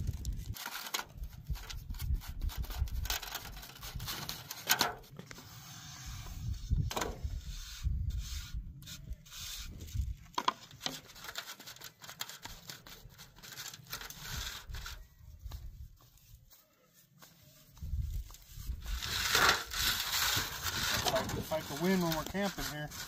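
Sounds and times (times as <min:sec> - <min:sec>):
wind rumble on microphone: 0:00.0 - 0:04.2, 0:06.0 - 0:10.3, 0:17.8 - 0:21.5
hands rubbing pizza dough: 0:11.0 - 0:23.0.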